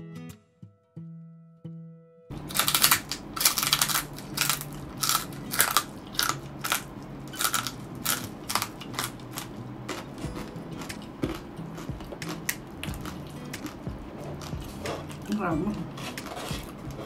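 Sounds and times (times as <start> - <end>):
crunching bites and chewing: 2.3 - 15.3.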